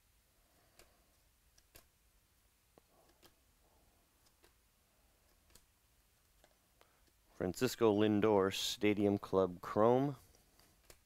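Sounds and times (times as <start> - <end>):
cards being flipped: 0.7 - 2.0, 4.2 - 4.6, 5.3 - 5.7, 10.6 - 11.0.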